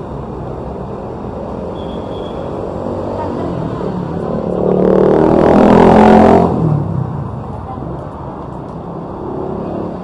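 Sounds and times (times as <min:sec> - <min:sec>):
city street traffic: 0:00.0 - 0:10.0
vehicle passing close by: 0:02.4 - 0:07.4.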